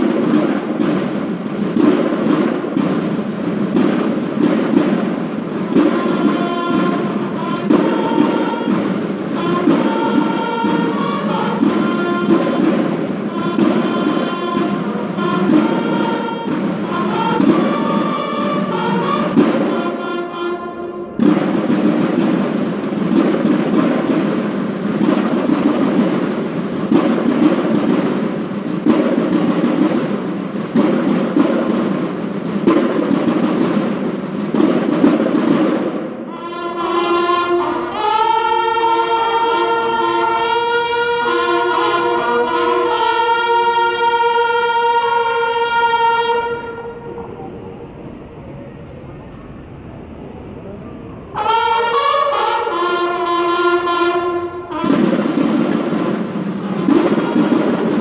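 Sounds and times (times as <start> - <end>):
snare drum cadence: 0.0 - 47.6, 51.4 - 58.0
bugles playing held notes: 0.0 - 58.0.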